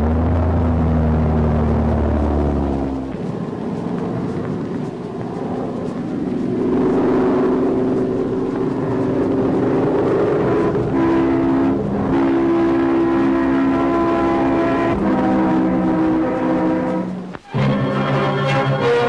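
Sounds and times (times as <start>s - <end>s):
train rumbling: 0.0s - 19.0s
train horn chord: 10.5s - 19.0s.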